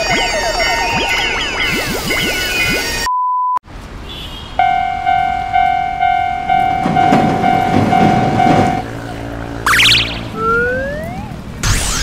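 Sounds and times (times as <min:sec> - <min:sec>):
railroad crossing bell ringing: 0:04.6 - 0:08.8
train clattering past on rails: 0:04.6 - 0:09.6.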